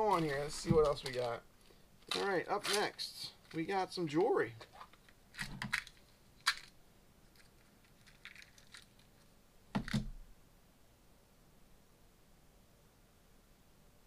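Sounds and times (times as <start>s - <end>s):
jewelry rattling: 7.3s - 9.3s.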